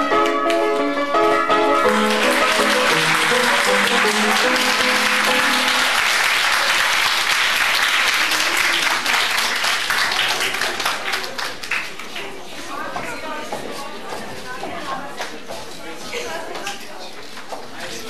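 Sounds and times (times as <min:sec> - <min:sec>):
keyboard music: 0:00.0 - 0:06.1
audience applauding: 0:01.8 - 0:12.3.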